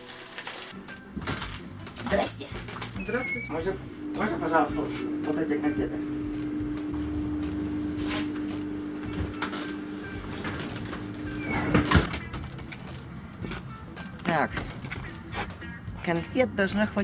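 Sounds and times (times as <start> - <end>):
steady hum: 3.5 - 12.2
glass door opening with clack: 11.2 - 12.9.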